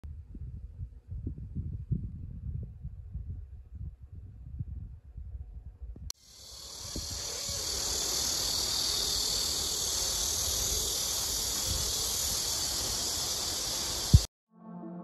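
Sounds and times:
high-pitched hiss: 0:06.2 - 0:14.3.

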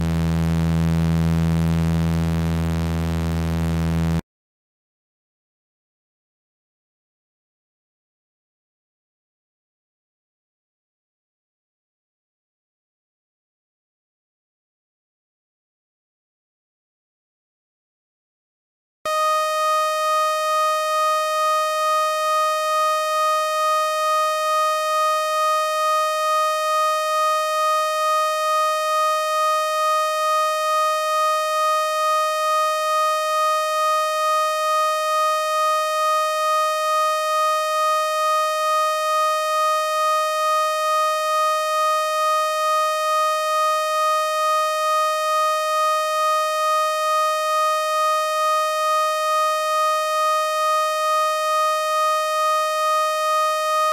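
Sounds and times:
buzzy electronic tone: 0:19.1 - 0:53.9.

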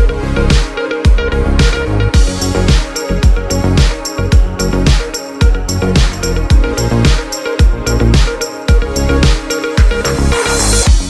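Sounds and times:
electronic music with kick drum: 0:00.0 - 0:11.0.

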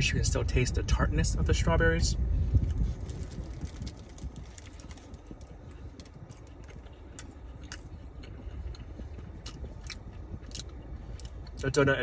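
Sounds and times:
chewing donut: 0:02.6 - 0:12.0.

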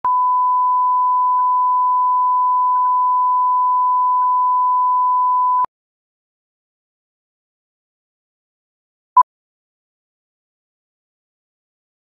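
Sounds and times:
steady test tone beep: 0:00.0 - 0:05.7.

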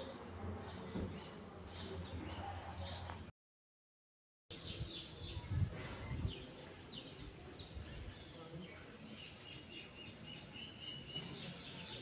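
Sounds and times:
low outdoor background noise: 0:00.0 - 0:03.3, 0:04.5 - 0:12.0
small birds chirping: 0:04.5 - 0:12.0.

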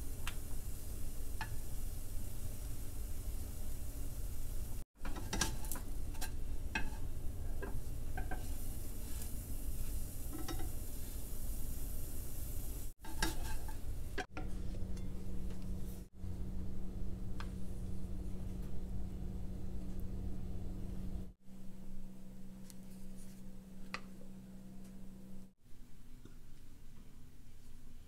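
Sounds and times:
pancake sizzling in frying pan: 0:00.0 - 0:14.3
low steady hum: 0:00.0 - 0:28.0
spatula scraping a pan: 0:05.0 - 0:11.2, 0:13.0 - 0:15.2.

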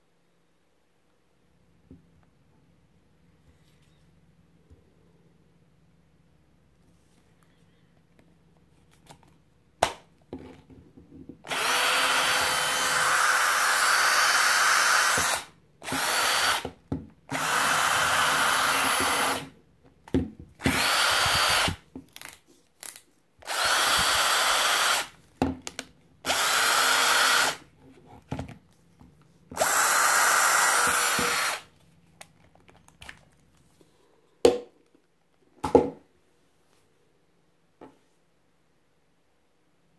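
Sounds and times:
cordless drill motor whining: 0:11.5 - 0:16.7, 0:17.3 - 0:19.5, 0:20.6 - 0:21.8, 0:23.4 - 0:25.1, 0:26.3 - 0:27.6, 0:29.6 - 0:31.6.

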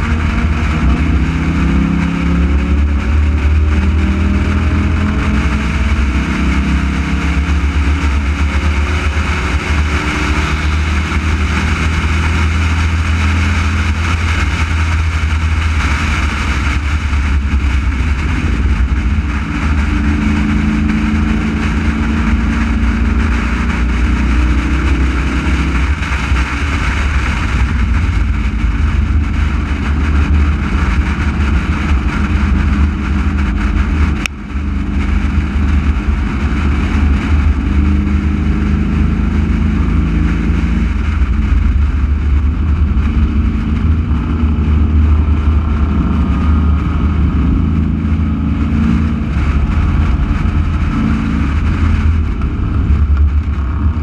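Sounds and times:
race car engine running hard: 0:00.0 - 0:54.0
wind and road noise: 0:00.0 - 0:54.0.

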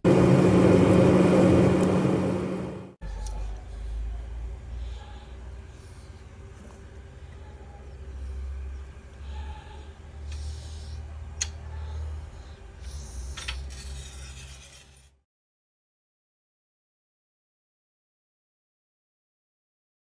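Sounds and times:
rubbing and scraping: 0:13.2 - 0:15.2.

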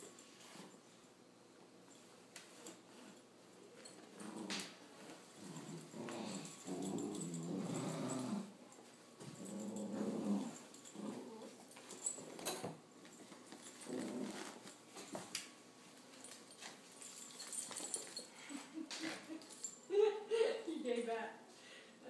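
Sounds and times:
puppies growling playfully: 0:04.1 - 0:04.8, 0:05.4 - 0:08.6, 0:09.2 - 0:12.2, 0:13.8 - 0:14.6.

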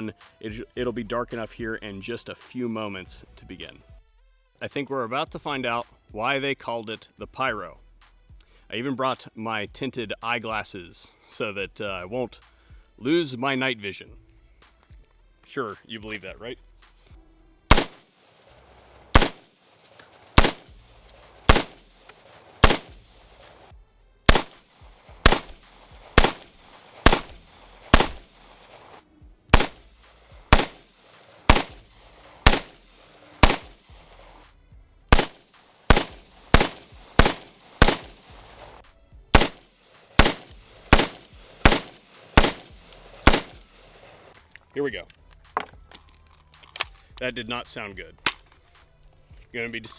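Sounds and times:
rifle firing single shots: 0:17.7 - 0:23.7, 0:24.3 - 0:34.4, 0:35.1 - 0:44.2.

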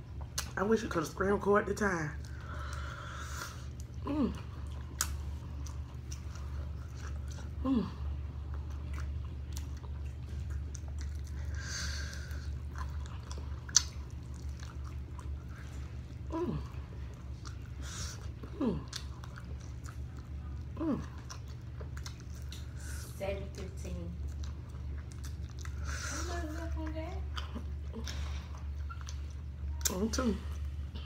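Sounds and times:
chewing and biting food: 0:00.0 - 0:00.7, 0:02.0 - 0:31.0
steady low hum: 0:00.0 - 0:31.0
wet mouth sounds: 0:08.8 - 0:22.9.

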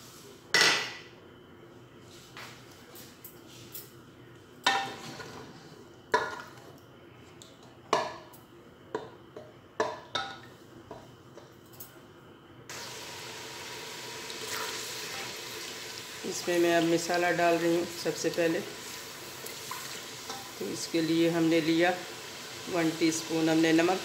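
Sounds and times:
oil sizzling: 0:12.7 - 0:24.0.

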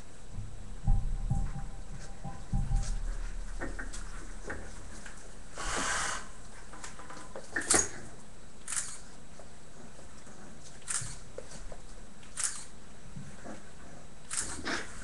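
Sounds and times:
rustling: 0:00.0 - 0:15.0
puppies playing on wooden floor: 0:00.4 - 0:12.4, 0:13.0 - 0:15.0
sharp clicks: 0:08.6 - 0:09.1, 0:12.2 - 0:12.7.

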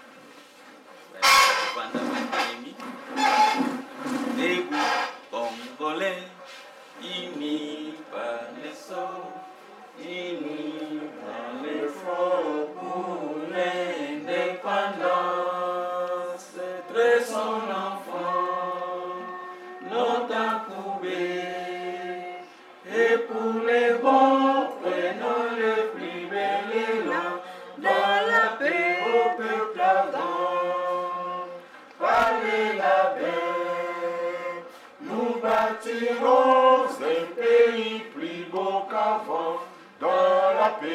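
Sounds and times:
group singing unaccompanied: 0:01.2 - 0:40.9
short breaths: 0:27.4 - 0:27.8, 0:34.7 - 0:35.0.

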